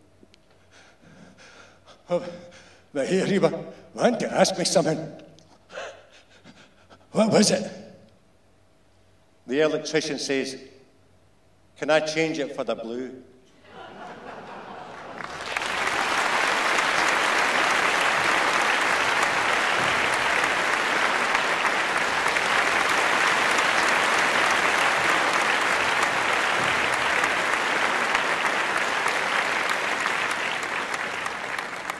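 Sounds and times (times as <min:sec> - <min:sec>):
audience applauding: 0:13.8 - 0:31.9.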